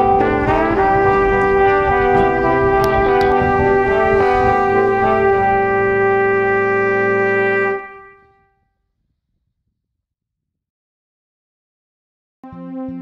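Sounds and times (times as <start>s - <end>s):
brass ensemble playing chords: 0.0s - 8.3s.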